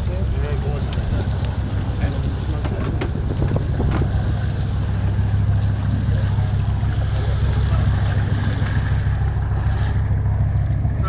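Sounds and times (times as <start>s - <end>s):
boat engine humming: 0.0s - 11.0s
water rushing along hull: 0.0s - 11.0s.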